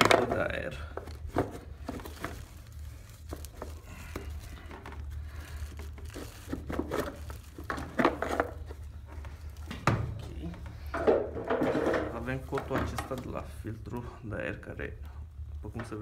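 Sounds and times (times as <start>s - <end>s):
plastic scraping against metal: 0.0s - 9.7s.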